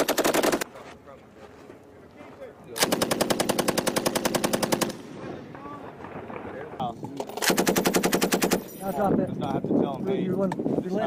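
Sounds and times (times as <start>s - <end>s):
machine gun firing bursts: 0.0s - 0.6s, 2.8s - 5.3s, 7.2s - 8.7s.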